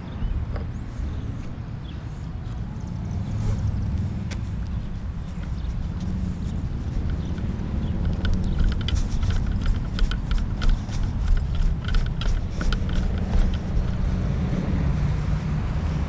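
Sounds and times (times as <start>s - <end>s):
wind buffeting microphone: 0.0s - 16.0s
light clicks: 4.0s - 14.1s.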